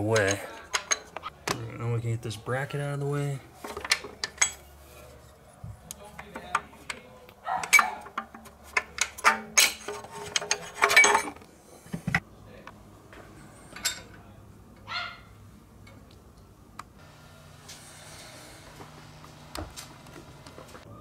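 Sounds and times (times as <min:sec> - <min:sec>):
metal tools and parts clinking: 0:00.0 - 0:01.3, 0:03.6 - 0:04.8, 0:07.6 - 0:11.4, 0:13.7 - 0:14.2.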